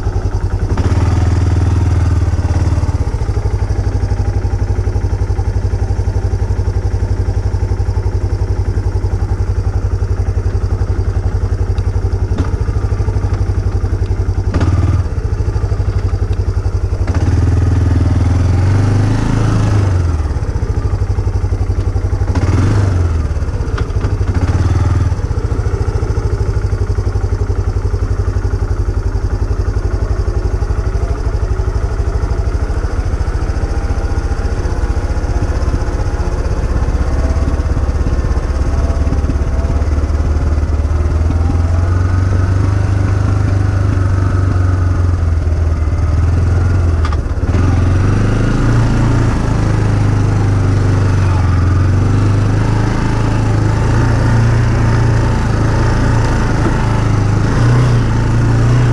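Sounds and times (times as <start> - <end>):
off-road vehicle engine revving: 0.0 - 58.9.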